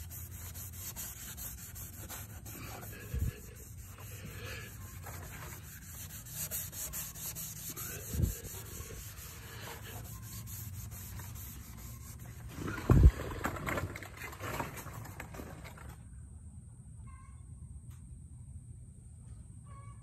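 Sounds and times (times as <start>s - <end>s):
scuff pad scrubbing fiberglass: 0.0s - 13.1s.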